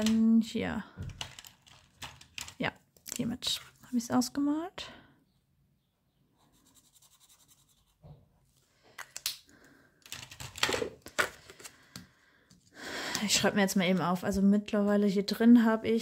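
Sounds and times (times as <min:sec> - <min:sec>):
felt-tip pen scribbling on paper: 0:06.4 - 0:08.0.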